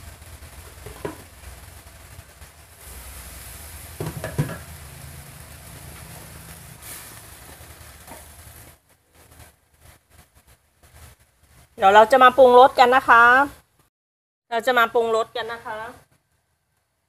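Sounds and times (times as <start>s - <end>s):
food sizzling in a frying pan: 0.0s - 13.9s
spatula knocking in pan: 0.8s - 1.3s, 4.0s - 4.7s.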